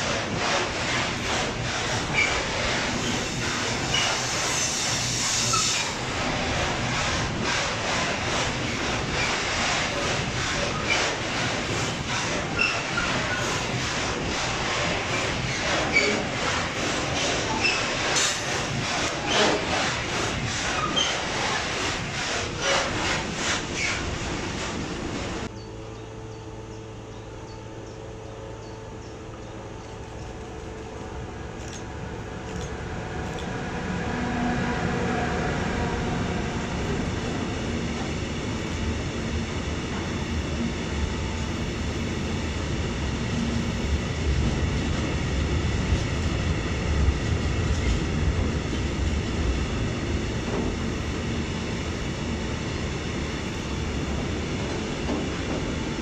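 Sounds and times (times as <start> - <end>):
train wheels on rails: 0.0 - 25.5, 30.3 - 56.0
freight train rolling past: 0.0 - 56.0.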